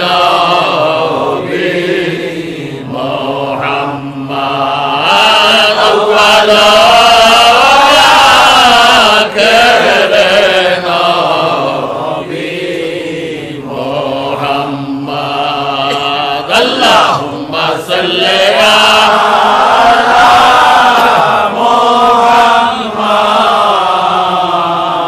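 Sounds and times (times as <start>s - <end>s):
man chanting devotional praise: 2.7s - 12.4s, 13.5s - 19.5s.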